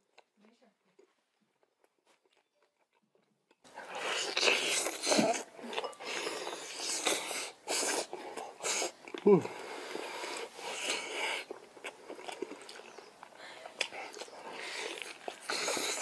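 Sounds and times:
wet chewing and lip-smacking: 0:00.0 - 0:16.0
person humming: 0:09.2 - 0:09.6.

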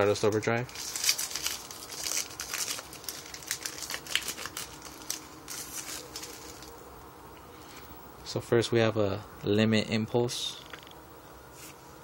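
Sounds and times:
foil wrapper tearing and crinkling: 0:00.7 - 0:06.8.

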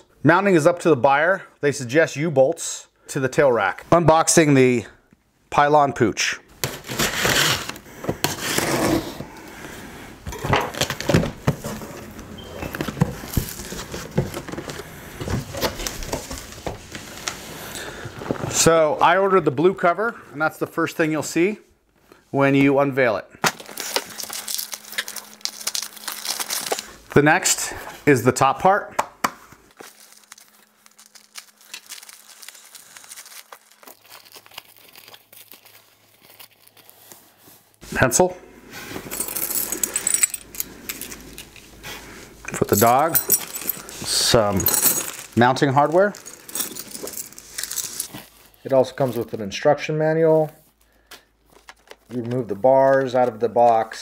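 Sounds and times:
foam wrap crinkling: 0:23.4 - 0:27.7, 0:29.7 - 0:37.8, 0:41.0 - 0:49.4.

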